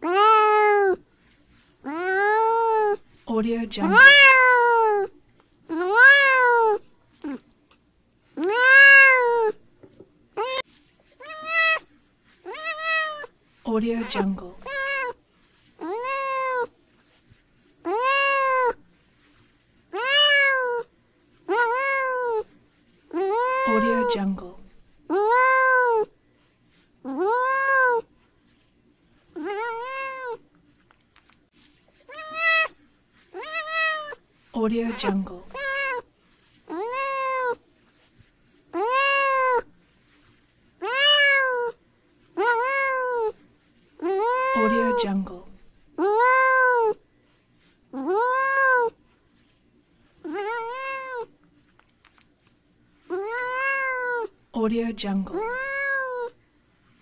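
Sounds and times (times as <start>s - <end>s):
kitten meowing: 0.0s - 1.0s, 3.8s - 5.1s, 5.7s - 7.4s, 8.4s - 9.6s, 10.4s - 10.6s, 11.2s - 11.8s, 12.5s - 13.3s, 14.1s - 15.2s, 15.8s - 16.7s, 17.9s - 18.8s, 20.0s - 20.9s, 23.2s - 24.3s, 27.1s - 28.0s, 29.4s - 30.4s, 32.1s - 32.8s, 33.4s - 34.2s, 35.0s - 36.0s, 36.7s - 37.6s, 38.8s - 39.7s, 44.0s - 45.1s, 50.3s - 51.3s, 53.1s - 54.3s, 55.4s - 56.4s.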